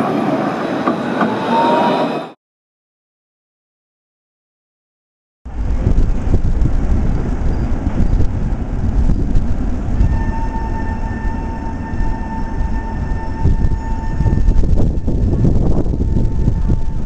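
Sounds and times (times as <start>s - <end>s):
trams rumbling past: 5.5s - 17.0s.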